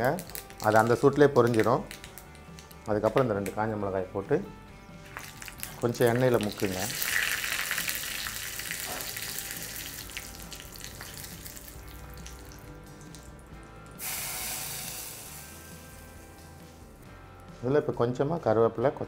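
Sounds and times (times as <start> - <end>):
hot oil sizzling in a ladle: 5.1 - 16.8
hiss of hot oil poured into pot: 14.0 - 16.7.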